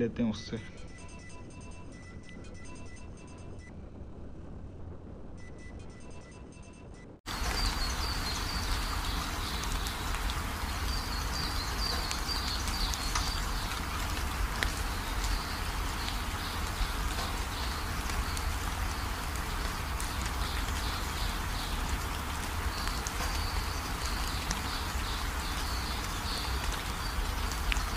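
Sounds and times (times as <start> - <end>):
faint background music: 0.0 - 3.9
distant waterfall: 7.3 - 27.9
light rain: 7.3 - 27.9.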